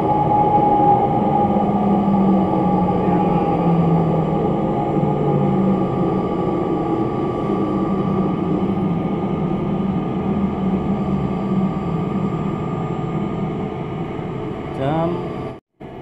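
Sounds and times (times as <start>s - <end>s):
thin whine: 0.0s - 15.5s
diesel railbus engine drone: 0.0s - 16.0s.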